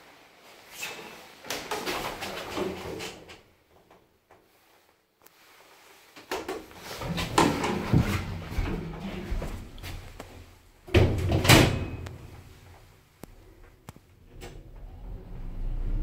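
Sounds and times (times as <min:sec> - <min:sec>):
lift doors rattling and knocking: 0:10.9 - 0:12.3.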